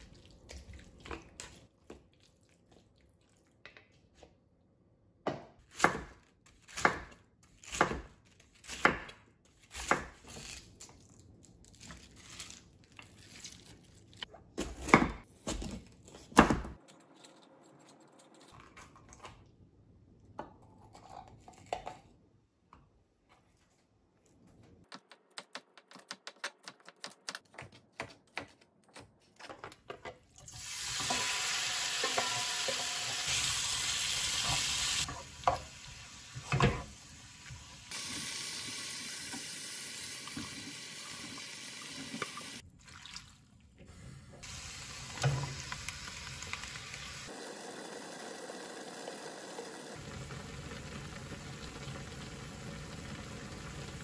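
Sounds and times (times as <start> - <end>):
chicken sizzling in frying pan: 30.6 - 42.6, 44.4 - 54.0.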